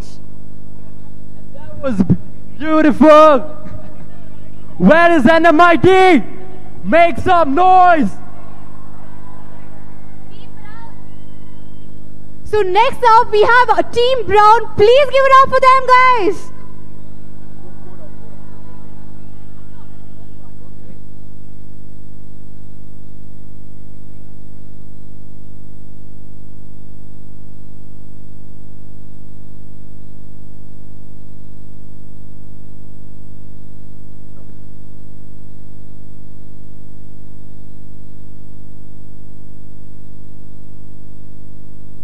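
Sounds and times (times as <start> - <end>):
electrical hum: 0.0 - 42.0.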